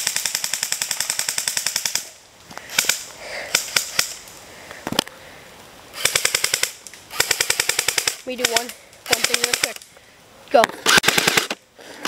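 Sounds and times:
airsoft gun shots: 0:10.7 - 0:11.6.

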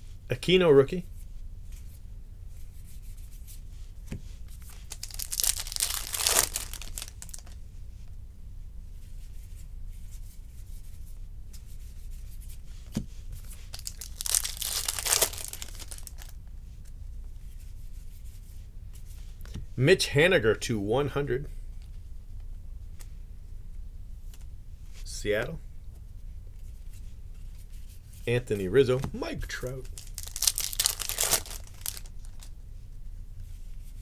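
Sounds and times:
steady low hum: 0:00.0 - 0:34.0
trading cards rustling and scraping: 0:04.5 - 0:07.6, 0:13.3 - 0:16.4, 0:26.6 - 0:32.5.

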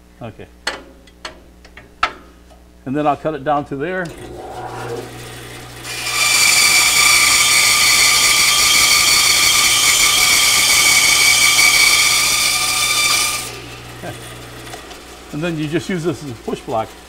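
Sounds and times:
saw motor humming: 0:04.0 - 0:14.9
bandsaw cutting wood: 0:04.1 - 0:14.8.

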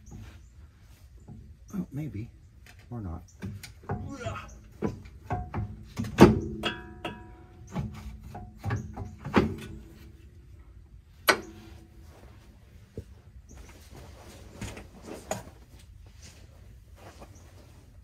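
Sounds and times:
tools clanking on metal: 0:02.6 - 0:10.6, 0:11.2 - 0:12.0.

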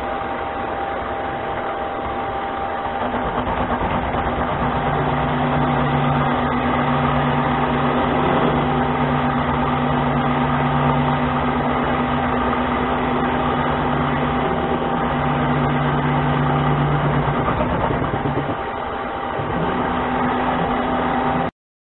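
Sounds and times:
lathe motor humming: 0:00.0 - 0:21.5.

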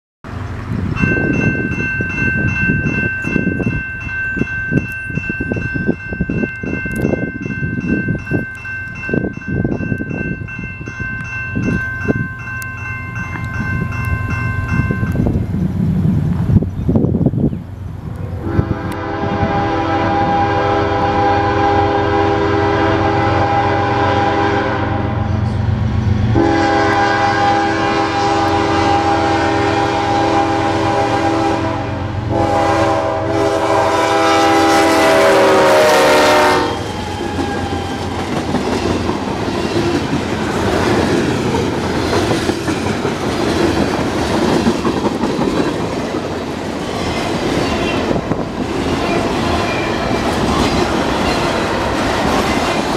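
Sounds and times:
train horn blasts: 0:18.4 - 0:25.6, 0:26.2 - 0:37.7.

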